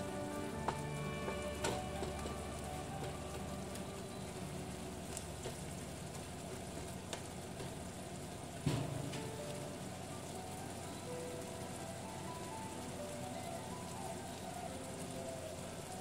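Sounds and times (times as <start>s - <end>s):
wooden spatula stirring: 0.0s - 8.6s
shrimp sizzling in a frying pan: 0.0s - 16.0s.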